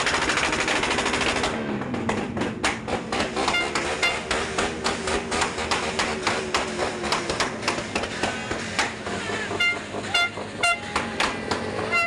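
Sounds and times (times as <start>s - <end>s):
short horn toots: 3.4s - 4.3s, 9.3s - 10.9s.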